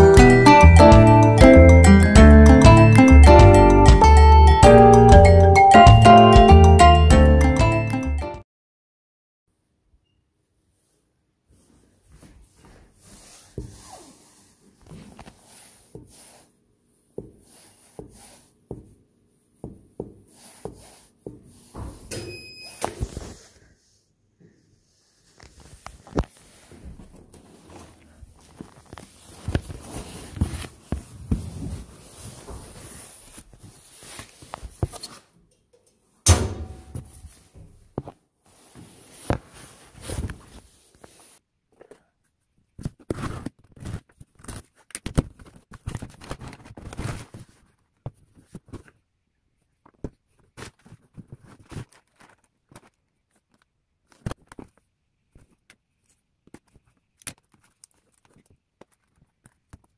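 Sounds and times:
cardboard box rustling and scraping: 0:27.4 - 0:35.0.

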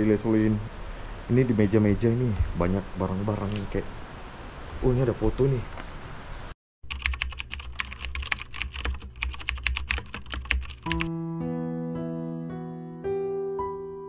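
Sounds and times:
keyboard typing clicks: 0:06.8 - 0:11.1
slow keyboard music: 0:10.4 - 0:14.0.

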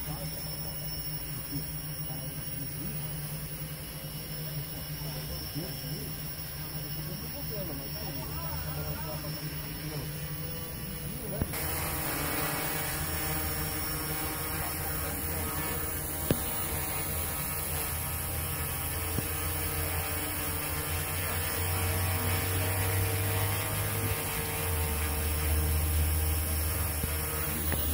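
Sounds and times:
quadcopter hovering hum: 0:00.0 - 0:27.9.

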